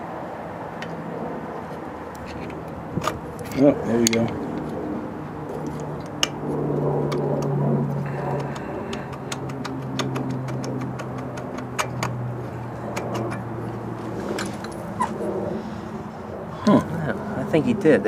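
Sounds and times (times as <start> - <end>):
steady low hum: 0.0 - 18.0
sharp metal clicks: 8.4 - 12.3.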